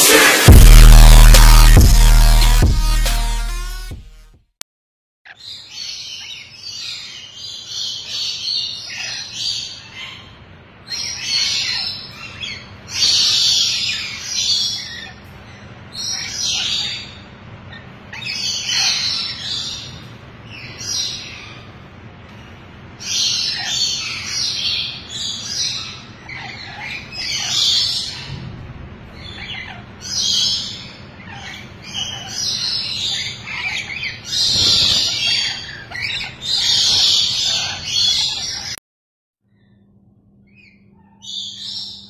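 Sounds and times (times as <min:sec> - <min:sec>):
parrots screeching and chattering: 0:05.3 - 0:21.8, 0:22.6 - 0:28.4, 0:29.1 - 0:38.8.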